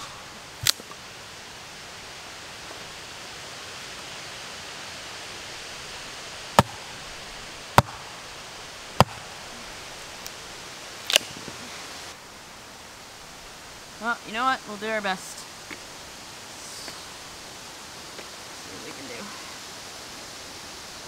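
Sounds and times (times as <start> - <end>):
steady hiss: 0.0 - 21.0
hatchet striking log: 6.6 - 7.0, 7.8 - 8.1, 9.0 - 9.4.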